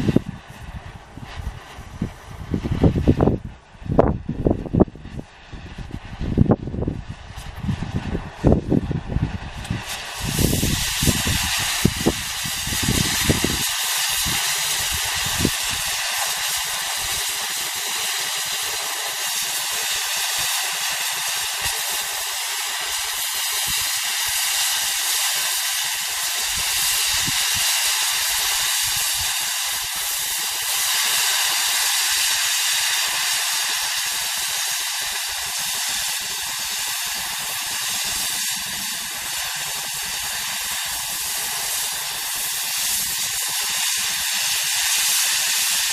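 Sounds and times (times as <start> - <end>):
cutting torch hissing: 0.0 - 45.9.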